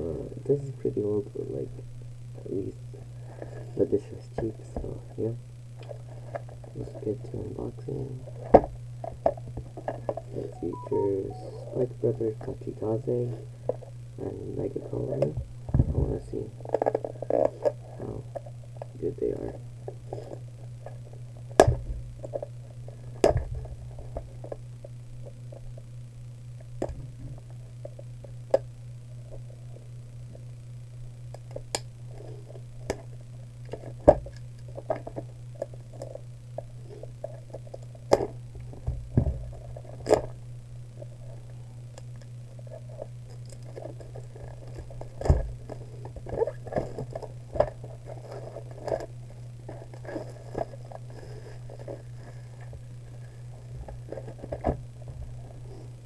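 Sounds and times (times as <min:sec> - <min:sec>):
low hum: 0:10.4 - 0:12.0.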